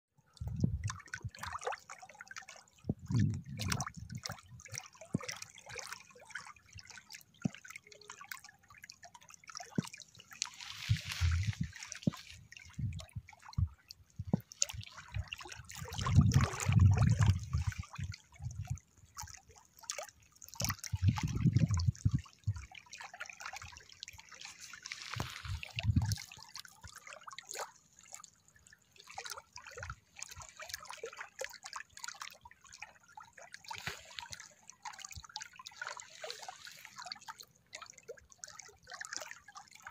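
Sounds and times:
waves lapping on stony shore: 9.4s - 13.6s, 22.8s - 27.9s, 33.3s - 37.4s.

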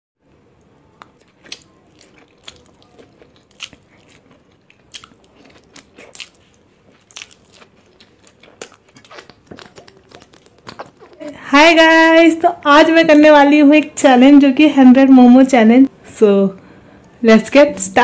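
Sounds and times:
chewing dumplings: 0.3s - 11.4s.

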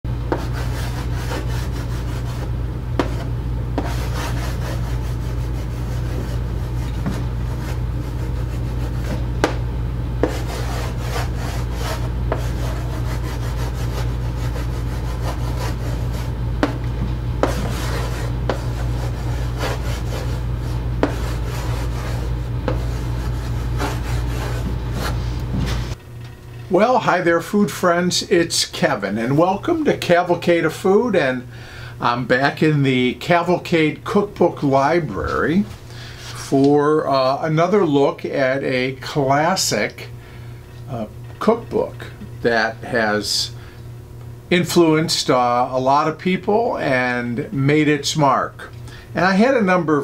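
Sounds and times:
steady low hum: 0.0s - 50.0s
chalk scratching on chalkboard: 0.3s - 9.6s, 10.2s - 16.8s, 17.4s - 25.9s.

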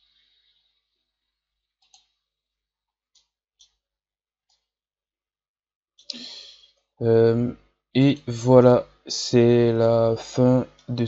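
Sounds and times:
computer mouse clicks: 1.8s - 2.2s, 3.1s - 3.8s.

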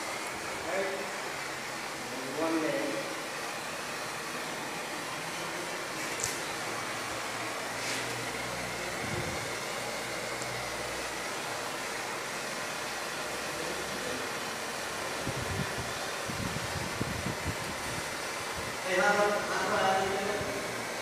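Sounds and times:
propane torch hissing: 5.6s - 21.0s.

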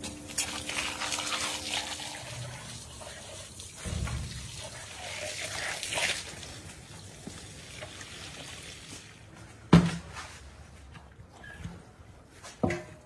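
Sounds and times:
water from hose splashing into metal bowl: 0.0s - 9.2s.

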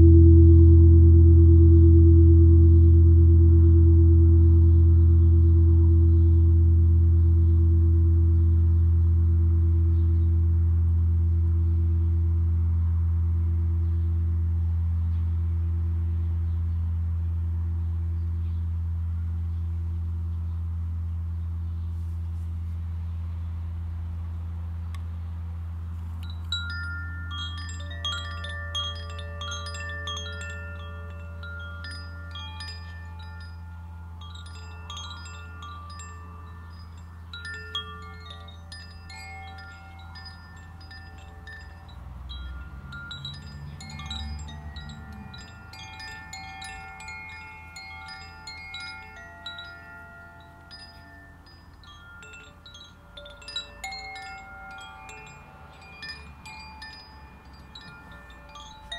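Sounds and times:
deep gong hum: 0.0s - 18.2s
chimes tinkling: 25.9s - 58.9s.

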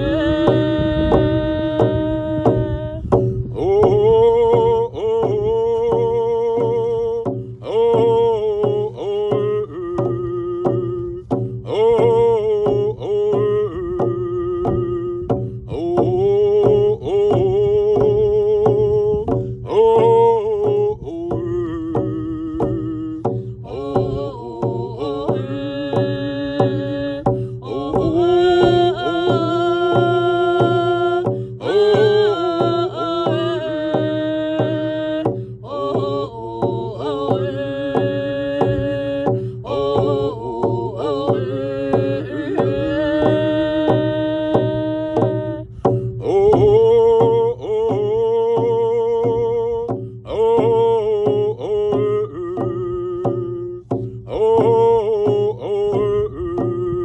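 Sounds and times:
frame drums beating: 0.0s - 57.0s
person singing: 0.0s - 57.0s.

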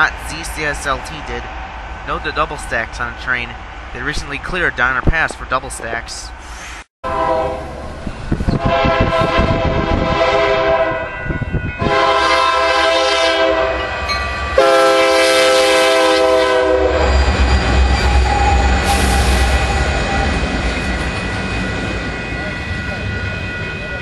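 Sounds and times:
locomotive air horn blasts: 7.0s - 7.7s, 8.6s - 17.1s
locomotive rumble passing: 7.1s - 24.0s.

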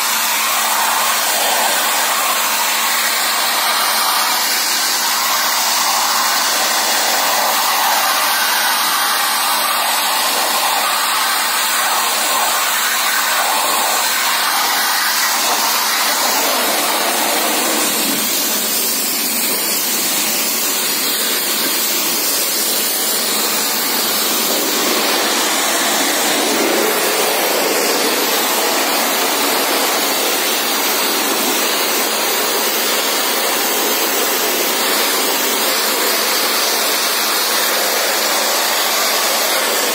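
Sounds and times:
pressure washer spraying water: 0.0s - 39.9s.

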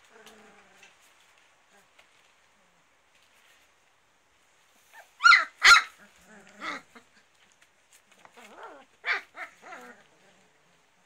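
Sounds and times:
puppies yipping: 4.9s - 7.2s, 8.4s - 10.0s.

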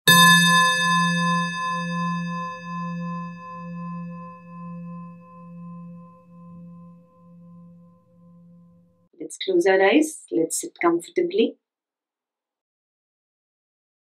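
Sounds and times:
singing bowl ringing: 0.1s - 9.0s.

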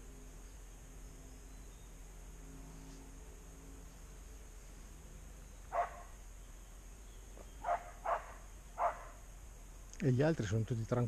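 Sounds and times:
faint outdoor hiss: 0.0s - 11.0s
dog barking: 5.7s - 6.1s, 7.6s - 9.2s.

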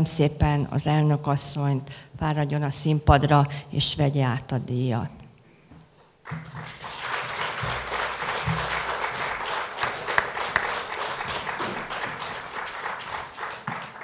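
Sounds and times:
audience applauding: 6.2s - 14.0s.

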